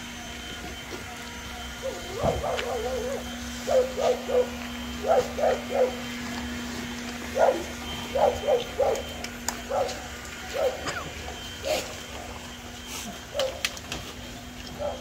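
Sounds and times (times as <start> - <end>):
dog barking: 2.1 - 6.0, 7.4 - 9.1, 9.7 - 11.0, 13.3 - 13.6, 14.8 - 15.0.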